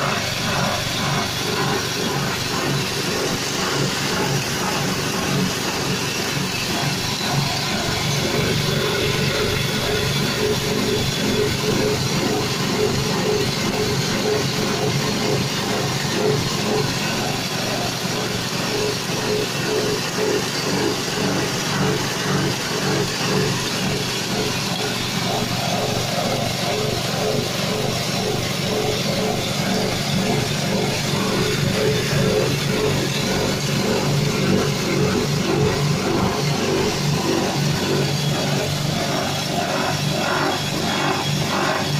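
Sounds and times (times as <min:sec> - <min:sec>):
grinding mill rushing: 0:00.0 - 0:41.9
petrol engine hum: 0:00.0 - 0:41.9.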